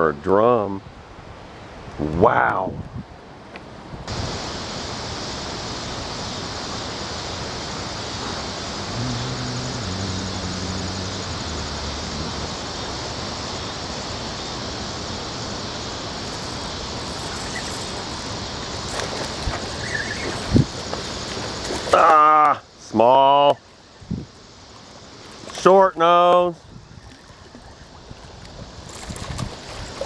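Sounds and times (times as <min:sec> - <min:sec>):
rushing churning water: 0:03.1 - 0:23.8, 0:24.4 - 0:30.0
faint low hum: 0:08.2 - 0:14.0.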